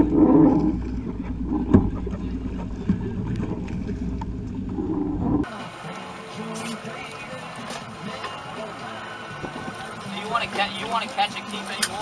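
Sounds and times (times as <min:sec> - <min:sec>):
water splashing against hull: 0:00.0 - 0:05.5
wind on microphone: 0:00.0 - 0:05.5
boat engine rumble: 0:00.0 - 0:12.0.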